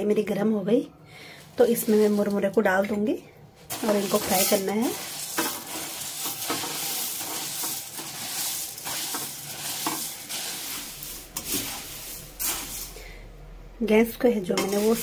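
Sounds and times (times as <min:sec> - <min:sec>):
puffed rice rustling and rattling: 0:03.7 - 0:13.0, 0:14.6 - 0:15.0
ladle scraping metal pan: 0:03.7 - 0:13.1, 0:14.5 - 0:15.0.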